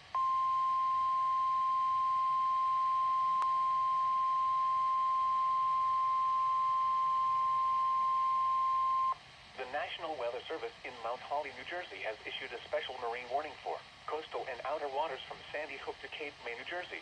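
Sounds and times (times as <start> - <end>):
steady alarm beep: 0.2 - 9.2.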